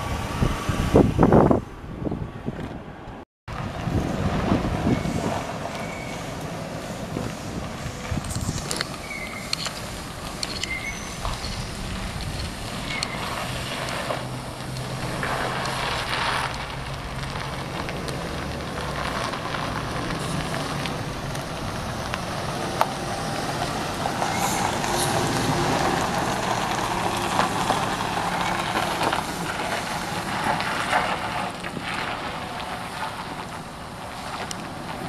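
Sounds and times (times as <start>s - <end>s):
broad rushing noise: 0.0s - 35.0s
engine running: 0.0s - 35.0s.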